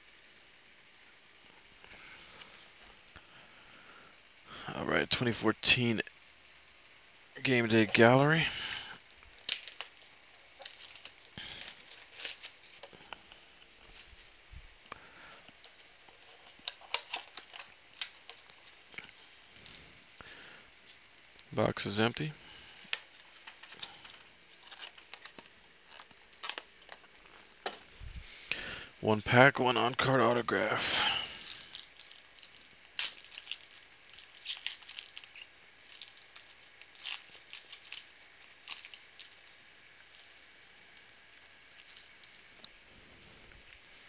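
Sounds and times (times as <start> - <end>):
foil wrapper tearing and crinkling: 8.6 - 14.4, 15.5 - 19.8, 22.8 - 27.9, 30.8 - 42.8.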